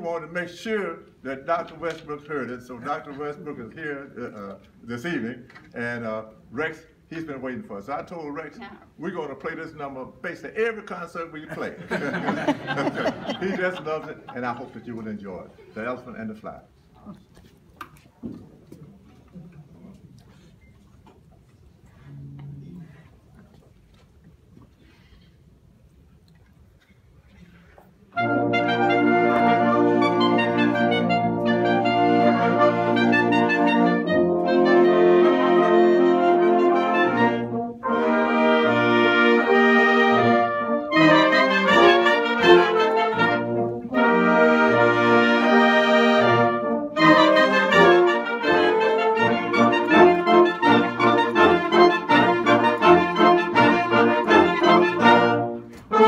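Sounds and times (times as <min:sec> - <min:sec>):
concert band with brass: 0:10.6 - 0:16.6, 0:28.0 - 0:56.0.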